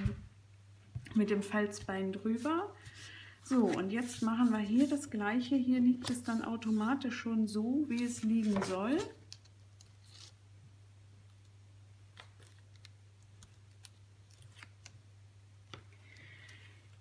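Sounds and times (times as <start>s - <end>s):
low steady hum: 0.0s - 17.0s
soft rubbing of cardstock: 2.3s - 5.2s, 6.0s - 7.2s.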